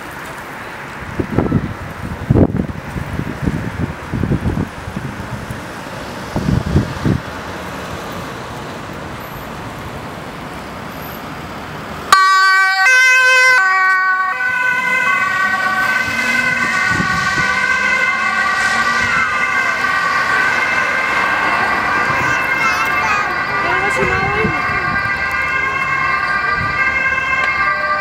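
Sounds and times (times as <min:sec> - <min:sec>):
van engine and road noise: 0:00.0 - 0:28.0
ambulance siren: 0:12.1 - 0:28.0.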